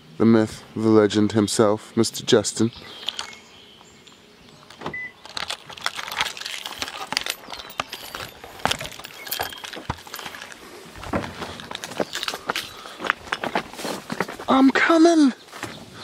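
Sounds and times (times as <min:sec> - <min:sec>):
footsteps rustling through tall grass: 0:05.9 - 0:14.5.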